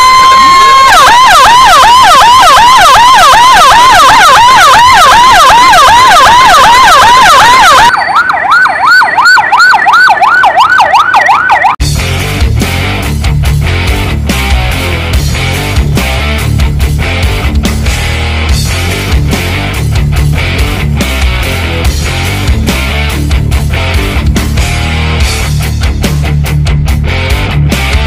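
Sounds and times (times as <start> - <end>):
electronic siren wailing and yelping: 0.0 - 11.8
rock music with guitar and drums: 11.8 - 28.0.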